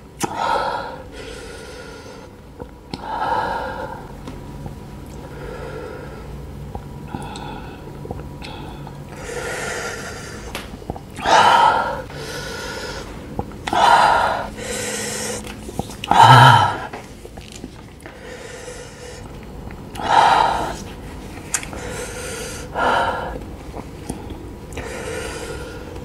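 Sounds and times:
man breathing hard through mouth: 0.2s - 2.4s, 7.1s - 17.1s, 18.1s - 19.4s, 20.0s - 20.9s, 21.7s - 23.4s, 24.1s - 26.0s.

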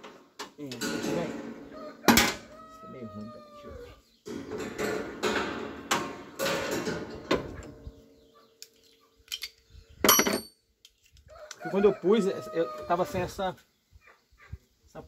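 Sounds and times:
bright metallic clink: 10.1s - 10.6s.

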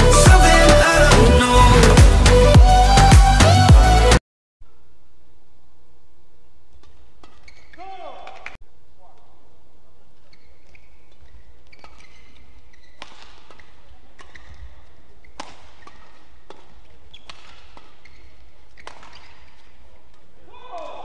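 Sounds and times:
court shoes squeaking: 6.7s - 8.6s, 9.9s - 21.0s
rackets hitting shuttlecock: 6.7s - 8.6s, 10.2s - 21.0s.

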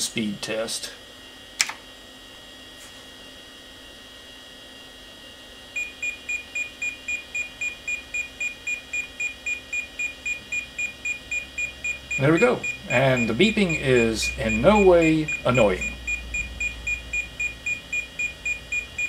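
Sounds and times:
single click: 1.6s - 1.8s
computer speaker beeping: 5.8s - 19.0s.

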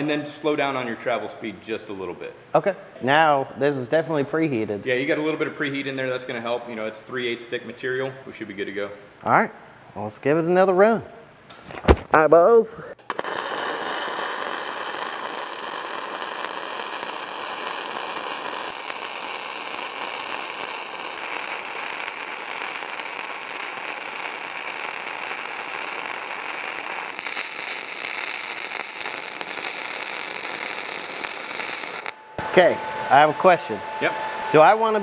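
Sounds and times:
welding arc crackling: 13.0s - 32.2s.

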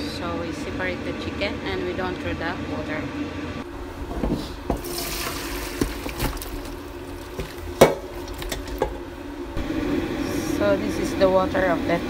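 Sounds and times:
broth splashing through strainer: 4.8s - 7.6s.

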